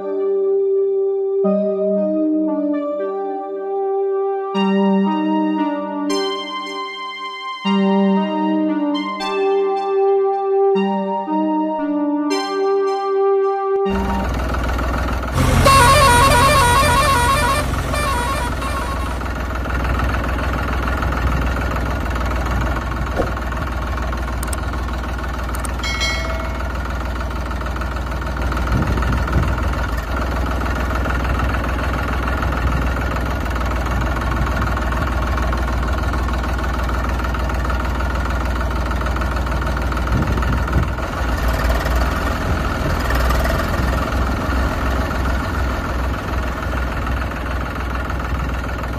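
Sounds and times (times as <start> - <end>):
horn blaring: 13.9 - 14.7, 15.3 - 19.9
tractor engine running: 13.9 - 48.9.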